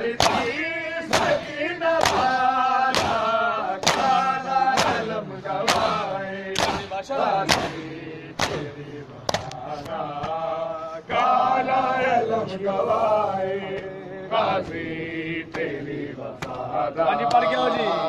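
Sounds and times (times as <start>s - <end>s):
men chanting in unison: 0.0s - 18.0s
hands slapping bare chests: 0.2s - 0.5s, 1.1s - 7.8s, 8.4s - 8.6s, 9.3s - 10.4s.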